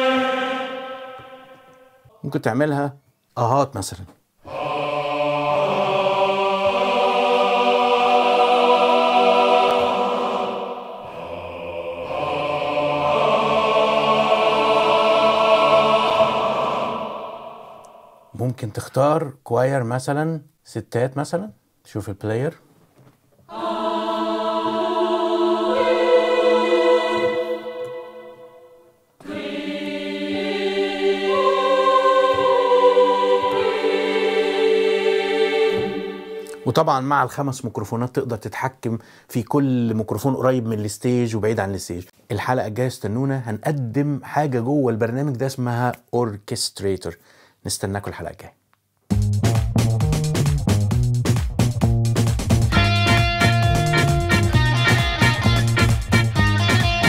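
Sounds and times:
men's choir singing sustained chords: 0.0 - 2.1, 4.4 - 18.4, 23.5 - 36.9.

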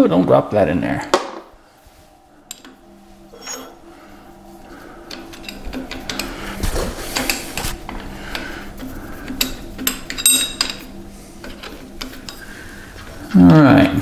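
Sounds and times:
metal tools clinking and scraping: 3.3 - 3.8, 5.1 - 8.4, 9.2 - 12.4.

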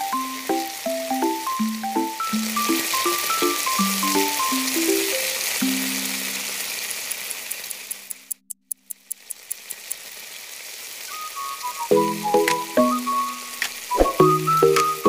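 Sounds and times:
soft background music: 0.0 - 6.3, 11.8 - 15.0
stew sizzling in a pan: 0.0 - 8.2, 9.2 - 15.0
faint ticks: 5.6 - 11.1.

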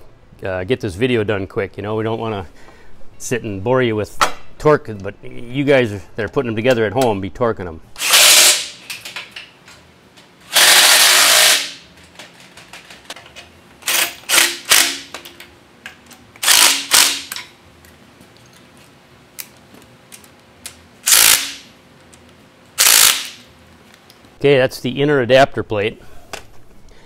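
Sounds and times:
impact wrench hammering: 13.8 - 15.3, 16.4 - 17.5, 22.8 - 23.4.

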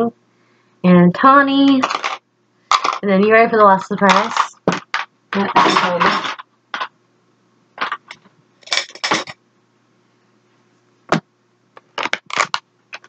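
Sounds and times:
makeup packaging clicking: 11.8 - 13.0.

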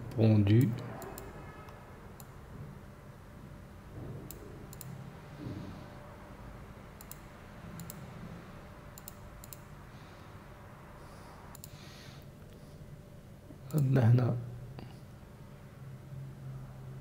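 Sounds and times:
low steady hum: 0.0 - 17.0
computer mouse clicking: 0.1 - 2.4, 4.3 - 5.0, 7.0 - 8.1, 8.9 - 9.7, 11.5 - 11.8.

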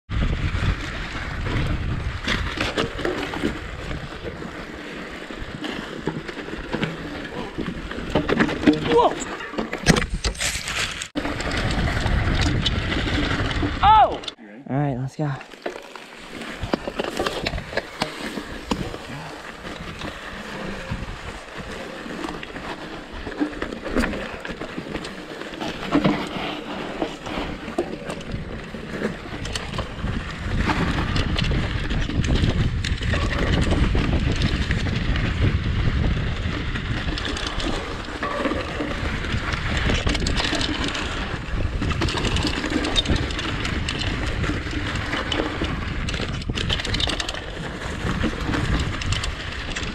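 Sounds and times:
bike rattling and knocking: 0.1 - 14.4, 15.4 - 49.9
tyres rolling over dirt: 0.1 - 14.4, 15.0 - 49.9
wind rumbling on microphone: 0.1 - 14.4, 16.3 - 49.9.

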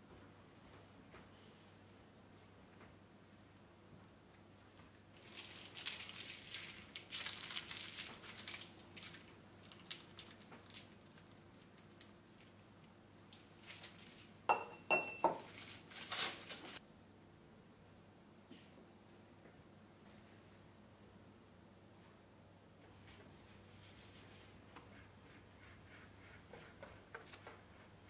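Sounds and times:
crinkling and rustling: 4.7 - 12.6, 13.3 - 14.4, 15.3 - 16.8
dishes clinking: 14.5 - 15.5.

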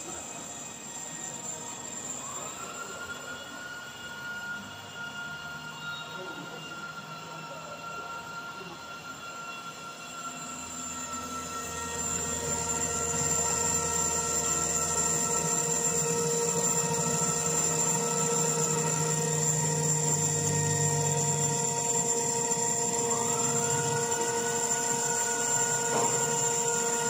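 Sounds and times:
router spindle whine: 0.0 - 27.0
metal cutting noise: 10.2 - 27.0.

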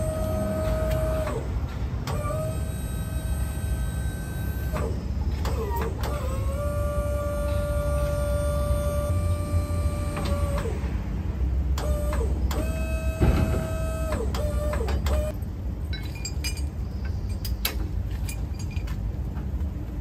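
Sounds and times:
hydraulic crane whining: 0.0 - 15.4
low steady rumble: 0.0 - 20.0
metallic chain clinks: 15.8 - 19.0.

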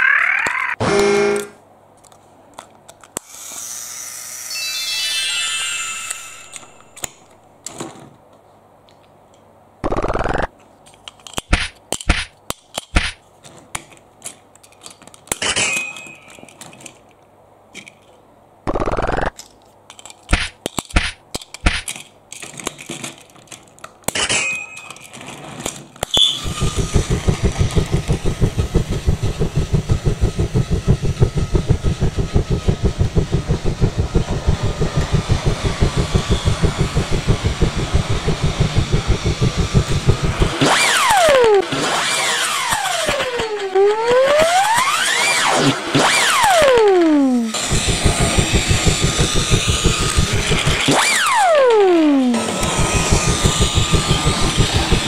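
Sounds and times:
plastic toy parts clicking: 1.4 - 3.3, 8.9 - 26.3
toy train motor whir: 3.1 - 7.4, 25.1 - 55.0
toy train clattering on track: 10.8 - 18.2, 19.3 - 26.3.

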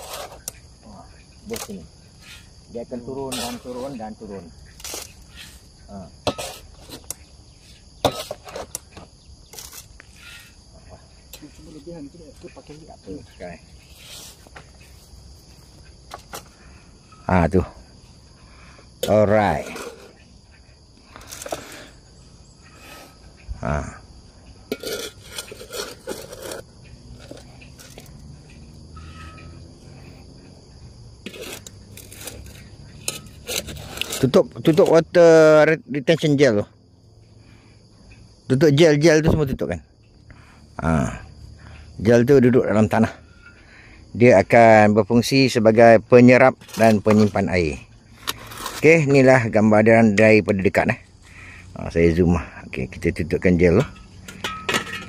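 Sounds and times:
shovel scraping soil: 0.0 - 0.6, 3.2 - 10.6, 19.0 - 20.2, 24.7 - 28.2, 31.2 - 35.0, 46.6 - 47.6, 48.2 - 49.3
insects chirring: 0.0 - 55.0.

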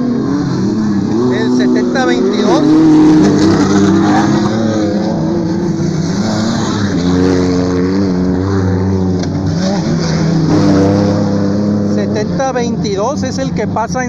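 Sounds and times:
truck engines revving: 0.0 - 14.0.

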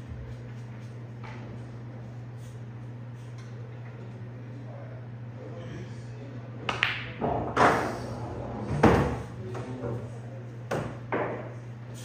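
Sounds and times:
steady low hum: 0.0 - 12.0
billiard balls clacking: 6.7 - 9.8.

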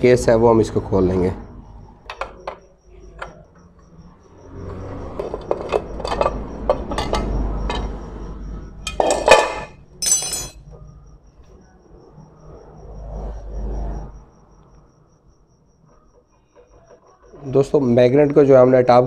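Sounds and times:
metal clinks: 8.9 - 10.6
ringing metal clank: 8.9 - 10.6.

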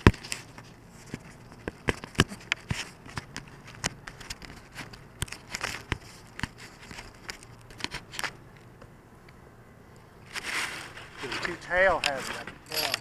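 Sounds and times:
contact noise clicks and crackles: 0.0 - 10.4, 11.2 - 13.0
rustle: 10.2 - 13.0.

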